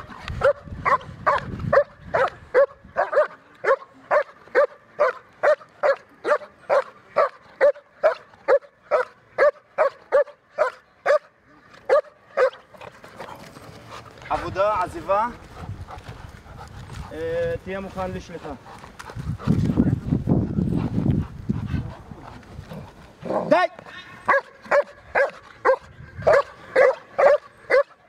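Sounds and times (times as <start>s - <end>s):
dog barking: 0.4s - 11.3s, 11.9s - 12.6s, 24.3s - 28.0s.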